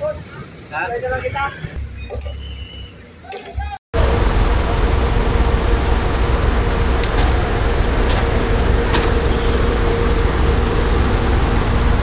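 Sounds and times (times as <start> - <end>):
vehicle engine idling: 4.0 - 12.0.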